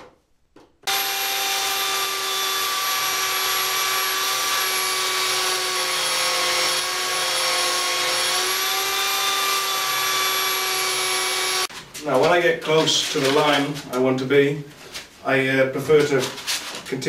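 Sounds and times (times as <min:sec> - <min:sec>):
belt sander motor whine: 0:00.9 - 0:11.7
wood sanding on belt: 0:00.9 - 0:11.7.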